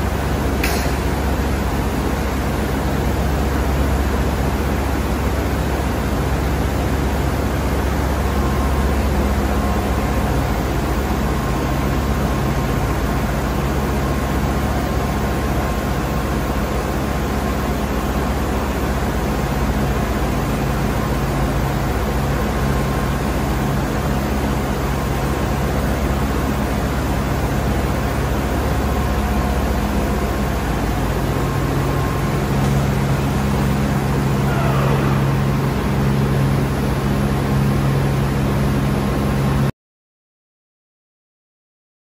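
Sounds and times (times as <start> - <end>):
machine hum: 0.0 - 39.7.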